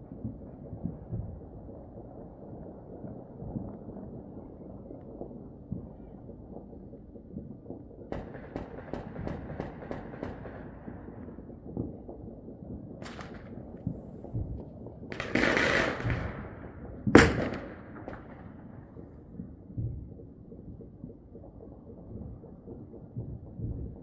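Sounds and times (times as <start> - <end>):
fireworks cracking and popping: 8.1 - 12.2, 13.0 - 19.2
low rumble: 10.5 - 24.0
loud firework bang: 17.2 - 18.6.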